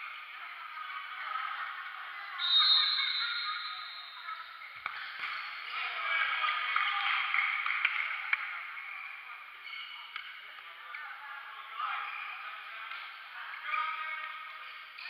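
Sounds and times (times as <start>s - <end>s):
referee's whistle: 2.4s - 4.2s.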